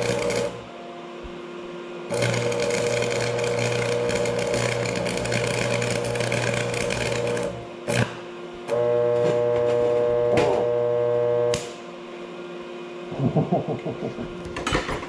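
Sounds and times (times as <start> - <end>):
welding arc buzzing: 0.0 - 0.7, 2.1 - 11.8
welder machine hum: 0.0 - 15.0.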